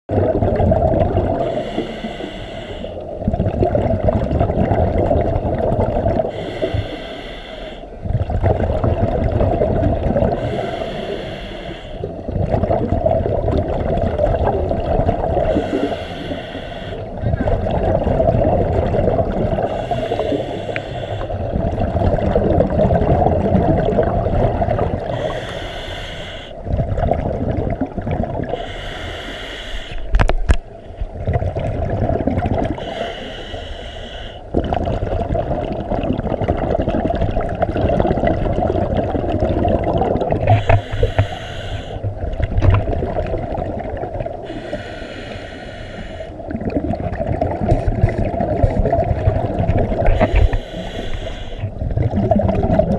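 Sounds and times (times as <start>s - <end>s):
low rumble of water: 0.0s - 52.9s
diver exhaling bubbles: 0.1s - 2.4s, 3.1s - 7.1s, 8.0s - 26.0s, 26.6s - 29.4s, 30.0s - 33.4s, 34.4s - 52.9s.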